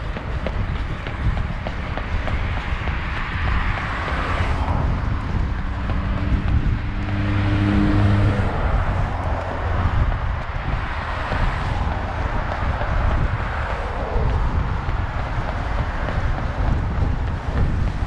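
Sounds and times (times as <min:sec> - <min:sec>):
road noise: 0:00.0 - 0:18.0
wind buffeting microphone: 0:00.0 - 0:18.0
car passing by: 0:01.9 - 0:18.0.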